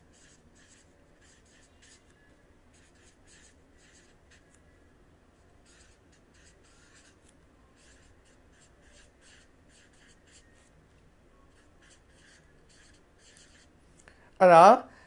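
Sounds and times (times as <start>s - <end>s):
marker writing on paper: 0.0s - 4.6s, 5.6s - 10.8s, 11.5s - 13.7s.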